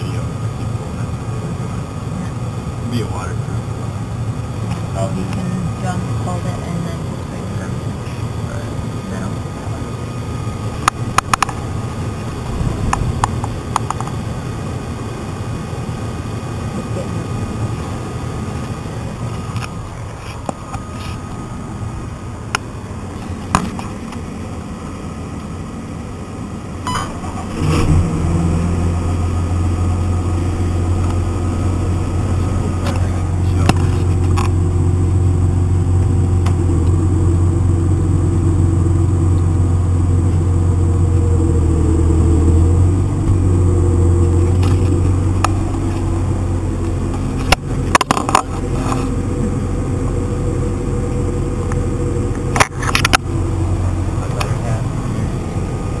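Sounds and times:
tractor diesel engine droning: 0.0 - 56.0
sharp clicks and knocks: 10.8 - 11.6, 12.5 - 14.2.

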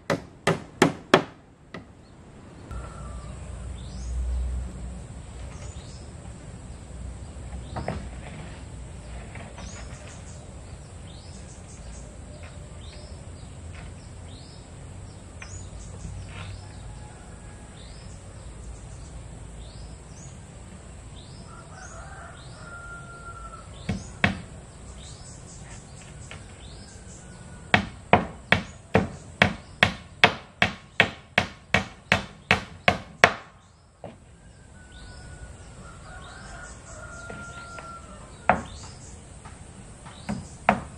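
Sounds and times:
hammer nailing wooden planks: 0.0 - 1.9, 23.9 - 24.5, 27.7 - 34.2, 40.0 - 40.9
birds chirping: 1.7 - 40.9.

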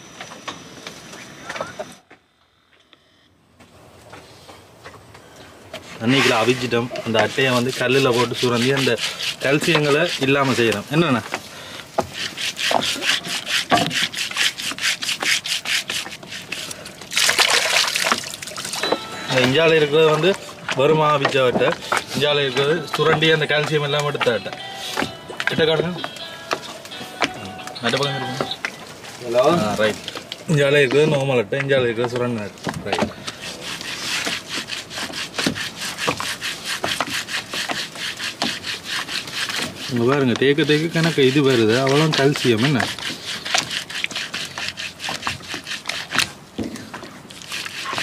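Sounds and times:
scraping on rough stone: 5.8 - 17.3, 18.0 - 48.0
water splashing: 12.3 - 22.4.

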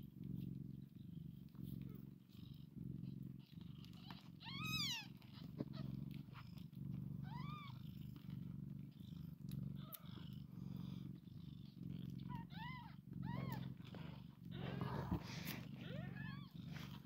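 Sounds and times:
cat purring: 0.0 - 17.0
kittens mewing: 12.3 - 17.0.

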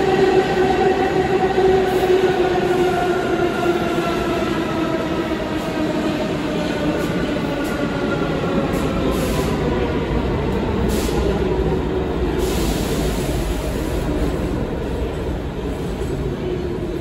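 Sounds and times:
subway train rumbling: 0.0 - 17.0.

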